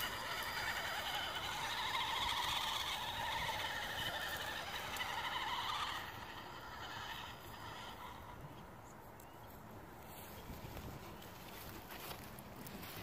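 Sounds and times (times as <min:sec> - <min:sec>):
toy truck electric motor whining: 0:00.0 - 0:08.4.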